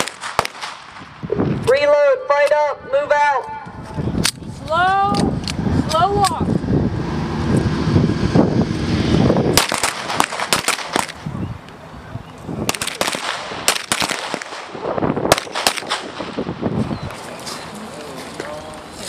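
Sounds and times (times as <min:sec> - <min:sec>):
pistol shots: 0:00.0 - 0:01.0, 0:09.5 - 0:11.2, 0:12.6 - 0:16.5
low rumble: 0:03.9 - 0:10.5.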